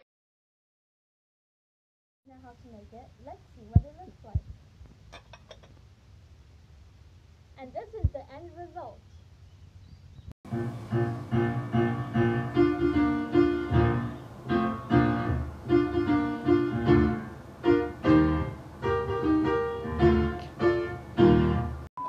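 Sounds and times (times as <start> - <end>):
piano music: 10.5 - 21.9.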